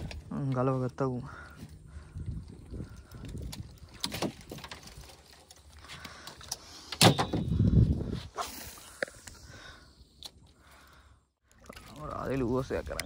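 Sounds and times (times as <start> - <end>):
clicks and knocks in wooden boat: 2.9 - 6.0.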